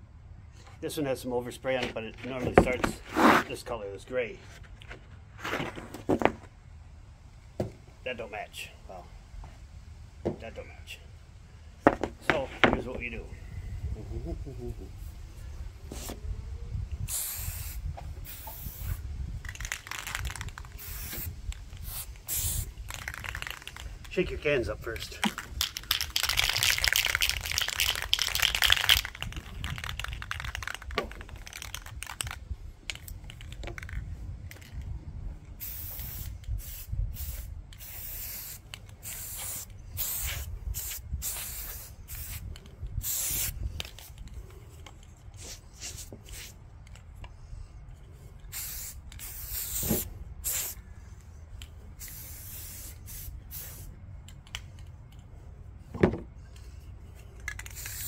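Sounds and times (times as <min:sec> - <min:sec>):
spray paint hissing bursts: 0:15.9 - 0:16.2, 0:17.0 - 0:24.3, 0:25.1 - 0:34.0, 0:35.5 - 0:44.2, 0:45.4 - 0:46.6, 0:48.4 - 0:54.0, 0:57.5 - 0:58.0
spray can ball rattling: 0:17.1 - 0:24.4, 0:25.0 - 0:34.9, 0:35.6 - 0:44.6, 0:48.4 - 0:50.8, 0:51.6 - 0:54.9, 0:57.3 - 0:58.0.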